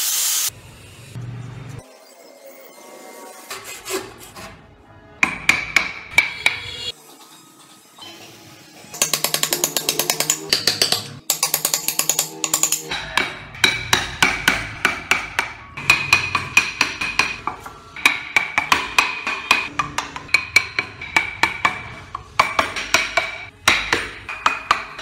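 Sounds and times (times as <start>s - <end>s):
chisel tapping into wood: 9.1s - 25.0s.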